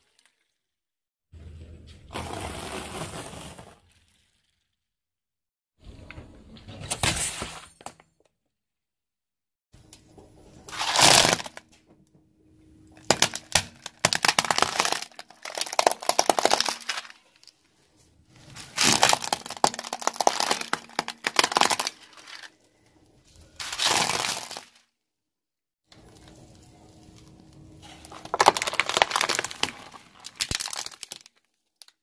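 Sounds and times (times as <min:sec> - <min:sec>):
plastic cracking and crunching: 0:10.7 - 0:11.7, 0:13.0 - 0:17.6, 0:18.3 - 0:22.6, 0:23.6 - 0:24.8, 0:27.2 - 0:32.0.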